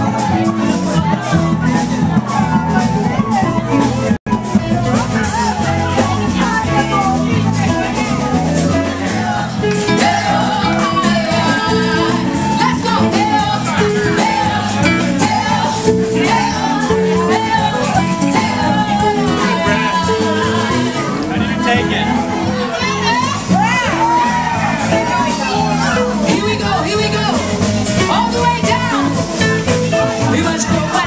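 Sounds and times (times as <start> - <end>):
dance music with singing: 8.8 - 27.4.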